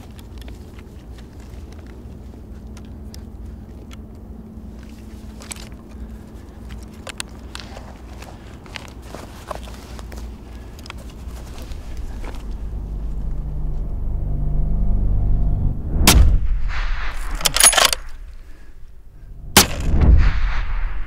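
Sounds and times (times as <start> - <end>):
rifle bolt metallic clicks: 17.2 - 18.3
rifle shots with rolling echo: 19.6 - 21.0.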